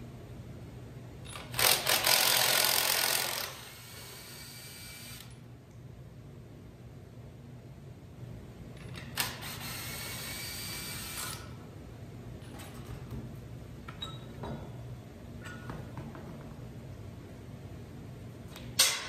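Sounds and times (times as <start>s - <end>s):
impact wrench running: 1.3s - 5.4s, 9.1s - 11.4s.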